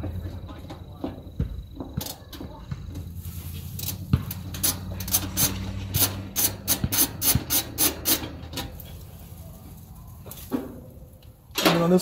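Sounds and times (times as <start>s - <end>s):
ratchet wrench ratcheting: 3.8s - 8.8s.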